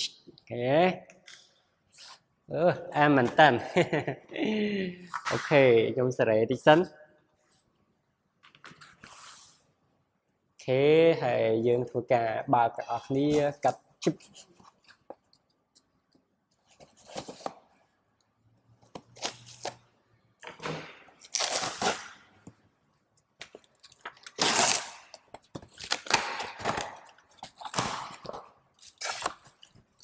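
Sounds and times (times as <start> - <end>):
knife slitting packing tape: 21.2 - 22.2, 23.8 - 29.7.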